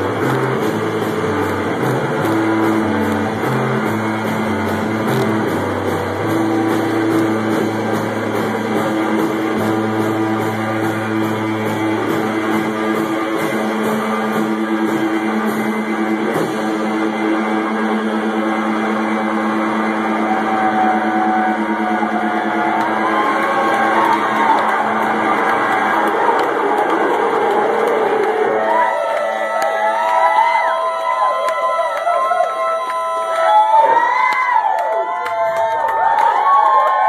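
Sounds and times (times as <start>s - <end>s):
drum kit hits: 0.0s - 17.4s
live rock band playing: 0.0s - 28.6s
electric guitar sustained notes: 0.0s - 36.9s.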